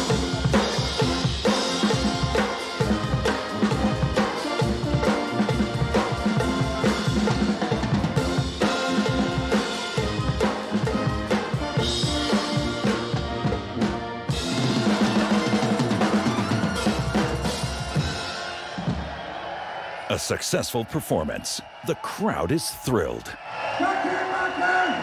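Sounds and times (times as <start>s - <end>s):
drum kit steady beat: 0.0s - 13.7s, 14.3s - 19.2s
band playing live: 0.0s - 19.2s.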